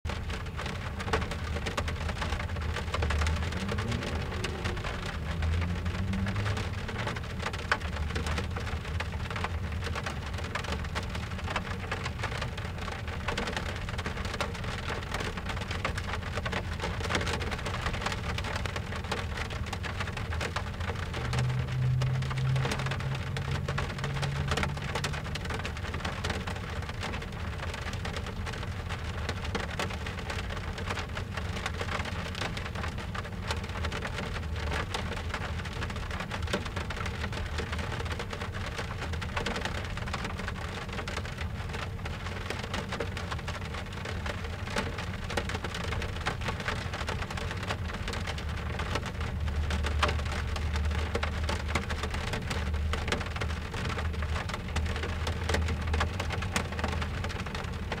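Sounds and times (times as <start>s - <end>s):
rain drumming on car roof: 0.1s - 58.0s
low rumble: 2.7s - 9.5s, 19.4s - 27.0s.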